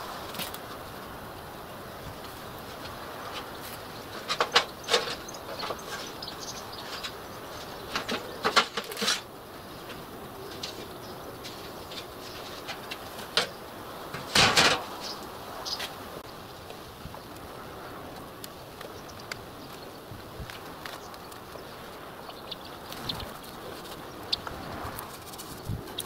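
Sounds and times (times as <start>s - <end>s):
sheet metal scraping and clattering: 4.1s - 6.2s, 6.8s - 9.3s, 10.5s - 15.0s.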